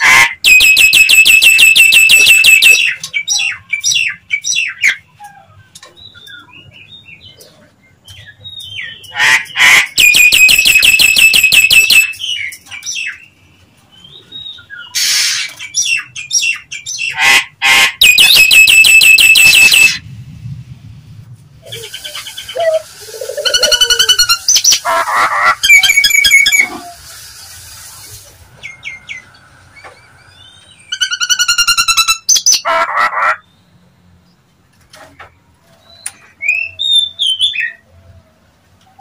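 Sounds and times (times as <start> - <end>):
myna calling rapid notes: 0.0 - 2.9, 17.2 - 20.0
bird whistles and squawks: 0.1 - 6.6, 14.3 - 20.0, 21.6 - 27.3.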